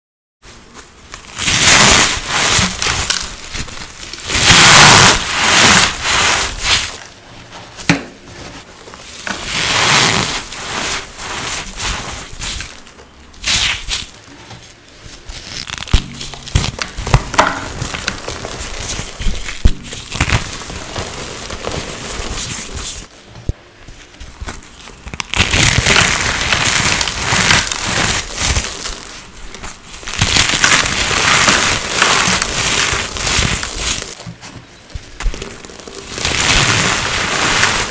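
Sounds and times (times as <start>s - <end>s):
dry powder blocks crunching: 0.6s - 7.1s, 8.5s - 23.1s, 24.0s - 37.9s.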